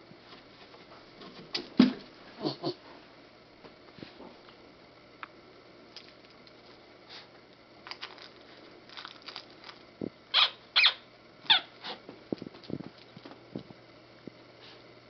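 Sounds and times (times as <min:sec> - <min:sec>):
dog yipping: 0:10.3 - 0:12.0.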